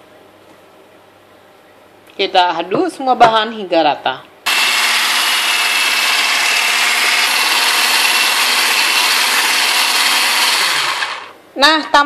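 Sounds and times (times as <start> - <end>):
electric mixer whisking batter: 4.5 - 11.4.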